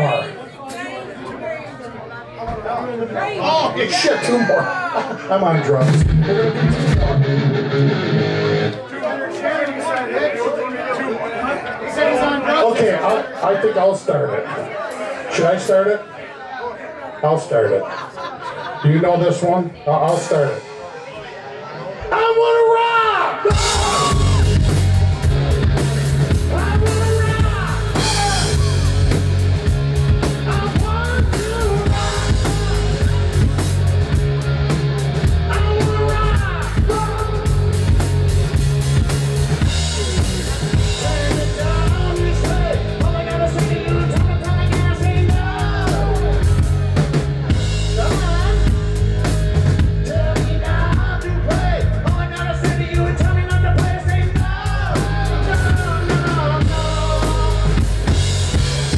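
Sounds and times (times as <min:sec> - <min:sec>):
electric guitars and bass: 0:05.4 - 0:08.8, 0:23.4 - 0:58.9
drum kit beat: 0:05.8 - 0:08.7, 0:23.4 - 0:58.9
person singing: 0:30.4 - 0:33.6, 0:35.4 - 0:38.0, 0:40.7 - 0:47.0, 0:50.0 - 0:58.1.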